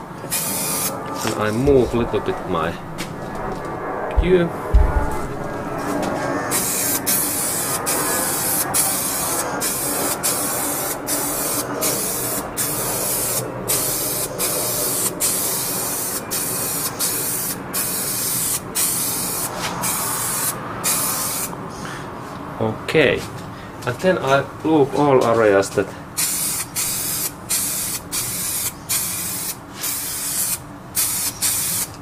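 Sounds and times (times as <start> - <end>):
spray paint can hissing: 0.3 - 0.9, 6.5 - 21.5, 26.2 - 32.0.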